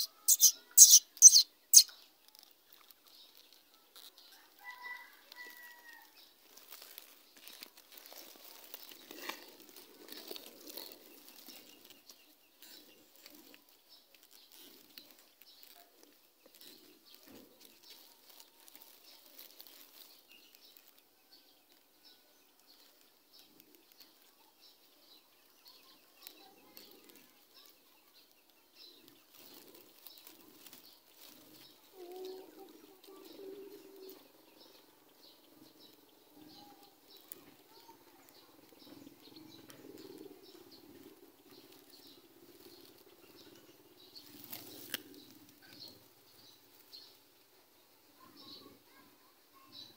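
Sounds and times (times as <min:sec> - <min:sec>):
distant bird chirps: 0:00.0 - 0:02.0
dry grass rustling: 0:00.0 - 0:21.8, 0:26.2 - 0:47.5.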